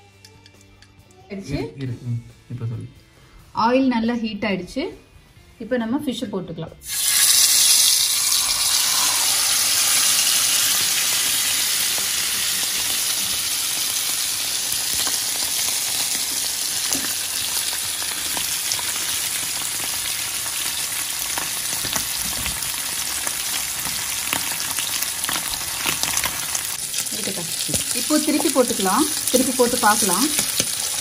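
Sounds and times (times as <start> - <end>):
fish sizzling in hot oil: 6.8 - 31.0.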